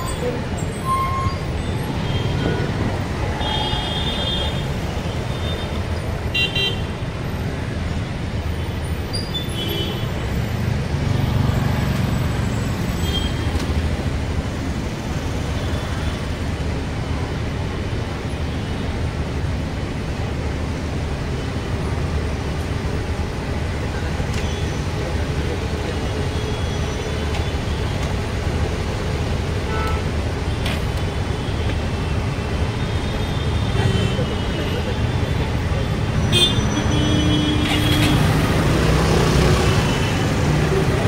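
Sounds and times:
bus engine and road rumble: 0.0 - 41.0.

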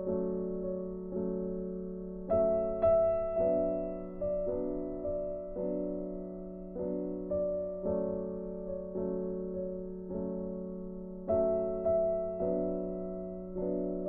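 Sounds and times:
slow gentle piano melody: 0.0 - 14.0.

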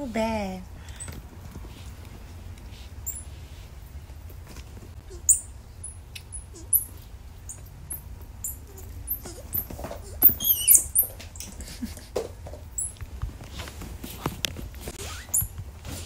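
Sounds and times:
animals moving on leather couch: 0.9 - 5.2, 6.9 - 16.0
monkey squeaking: 3.0 - 3.3, 5.0 - 11.6, 12.8 - 13.0, 15.0 - 15.5.

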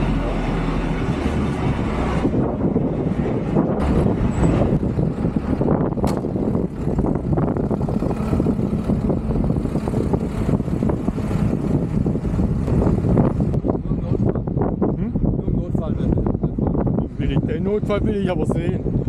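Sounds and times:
truck diesel engine running: 0.0 - 14.8.

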